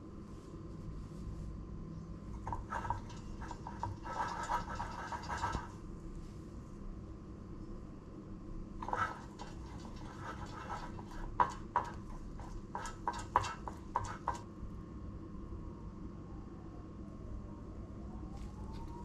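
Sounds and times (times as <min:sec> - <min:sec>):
steady low hum: 0:00.0 - 0:19.0
brush tapping in a metal tin: 0:02.4 - 0:05.8, 0:08.8 - 0:14.4.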